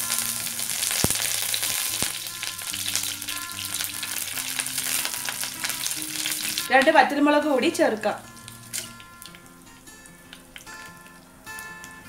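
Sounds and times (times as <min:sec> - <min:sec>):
leaves sizzling in hot oil: 0:00.0 - 0:12.0
sharp oil pops: 0:00.9 - 0:02.2.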